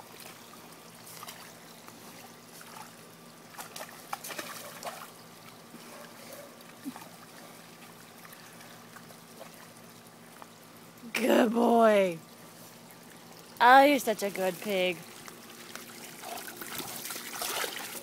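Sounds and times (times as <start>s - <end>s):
hose water splashing into mud: 14.5s - 18.0s
short sharp splashes: 15.9s - 18.0s.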